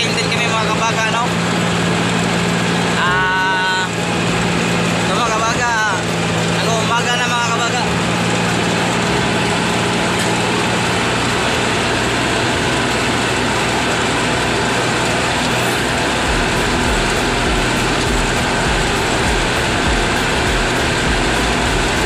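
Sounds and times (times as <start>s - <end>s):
tractor engine running: 0.0s - 22.0s
uneven low rumble: 15.8s - 22.0s.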